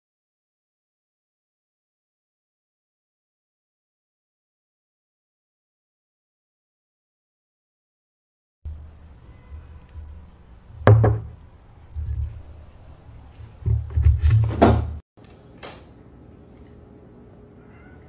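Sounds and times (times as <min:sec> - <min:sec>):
sharp knocks and thumps: 0:10.8 - 0:11.4, 0:13.6 - 0:15.0.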